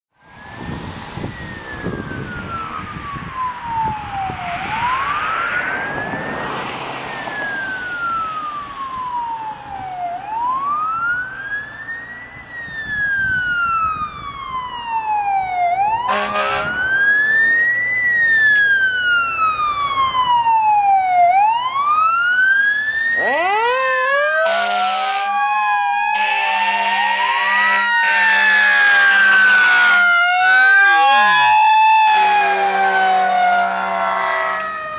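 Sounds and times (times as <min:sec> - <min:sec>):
electronic siren wailing: 0:00.2 - 0:34.9
air horn blasts: 0:16.0 - 0:16.8, 0:24.4 - 0:25.3, 0:26.1 - 0:34.8.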